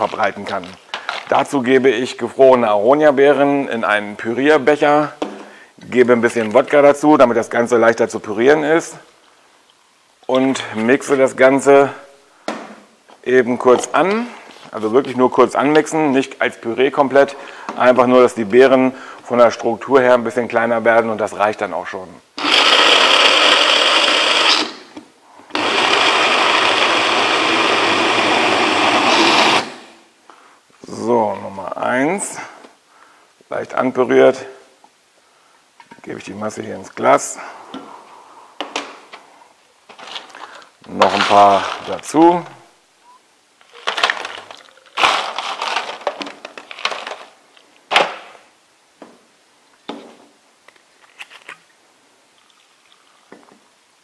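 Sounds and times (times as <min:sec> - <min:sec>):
blender chopping frozen berries: 0:22.4 - 0:24.8, 0:25.5 - 0:30.0, 0:45.0 - 0:46.1.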